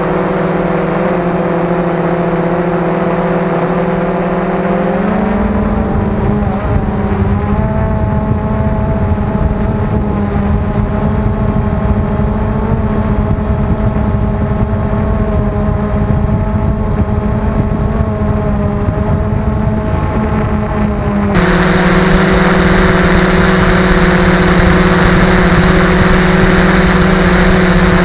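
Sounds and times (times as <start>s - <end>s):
drone motors humming: 0.0s - 28.0s
low rushing noise: 19.0s - 28.0s.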